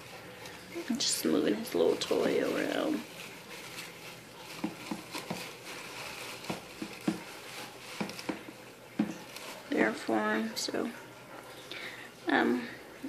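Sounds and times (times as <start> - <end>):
wood shavings rustling: 0.0 - 10.7.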